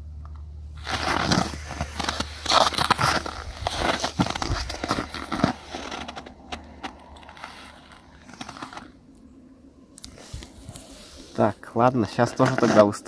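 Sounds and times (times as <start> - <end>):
sharp crackles: 0.2 - 9.0
clothing and snow crunching: 0.8 - 8.9.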